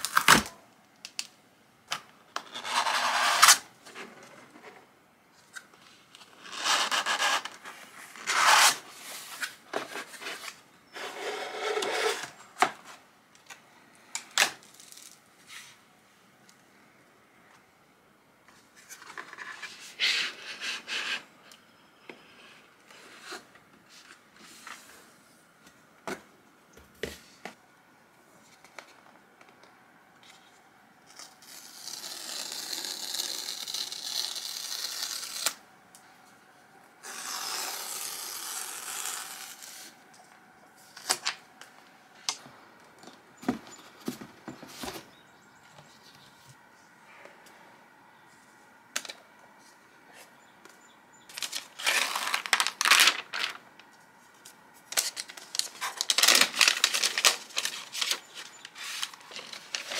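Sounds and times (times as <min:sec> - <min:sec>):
paper strips tearing: 0:31.2 - 0:35.6, 0:37.0 - 0:39.9, 0:51.4 - 0:53.6.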